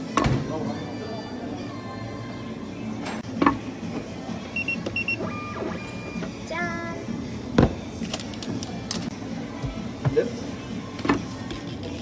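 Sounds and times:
short paired electronic beeps: 0:04.6 - 0:06.2.

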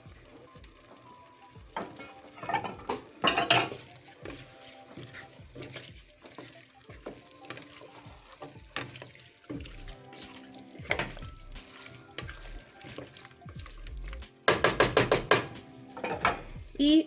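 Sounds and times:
background music: 0:00.0 - 0:17.0
cookware knocks and clatters: 0:01.8 - 0:04.4, 0:10.8 - 0:11.3, 0:14.5 - 0:16.5.

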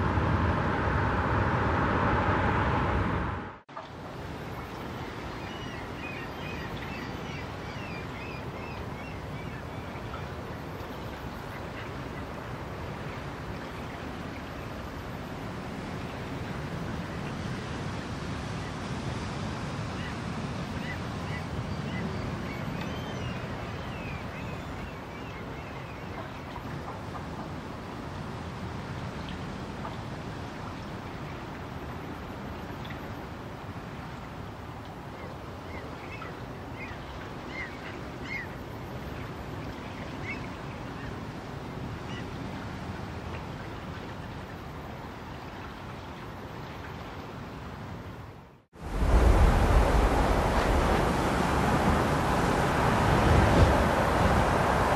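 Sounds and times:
wind rushing: 0:00.0 - 0:03.6, 0:48.8 - 0:54.9
water noise: 0:00.0 - 0:54.9
wind: 0:00.0 - 0:54.9.

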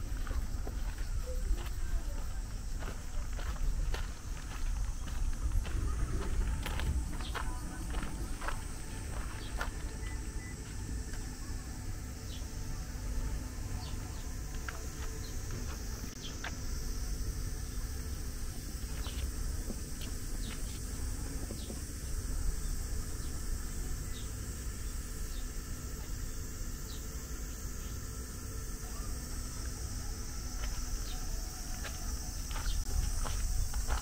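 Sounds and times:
wind rumble on microphone: 0:00.0 - 0:10.0
high insect drone: 0:00.0 - 0:34.0.

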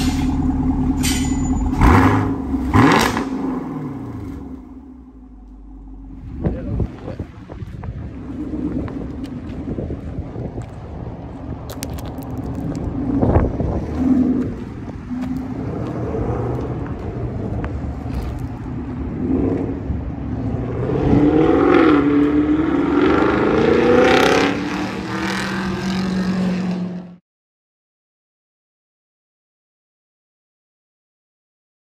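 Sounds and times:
car engine revving and accelerating: 0:00.0 - 0:05.1, 0:12.8 - 0:27.2.

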